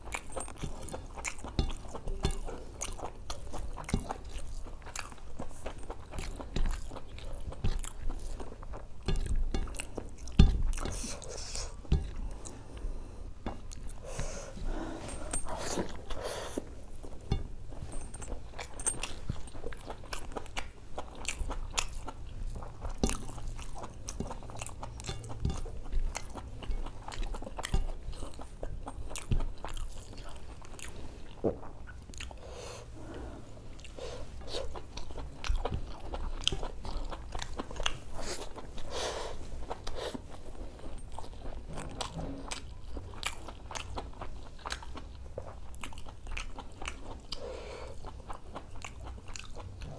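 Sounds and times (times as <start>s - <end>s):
close-miked chewing: 0.0s - 49.9s.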